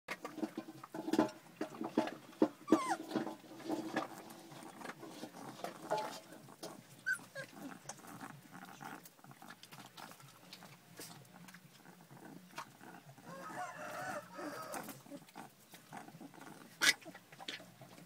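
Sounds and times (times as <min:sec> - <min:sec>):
puppies growling: 0:01.9 - 0:18.0
puppies squeaking: 0:02.6 - 0:03.2, 0:06.6 - 0:17.8.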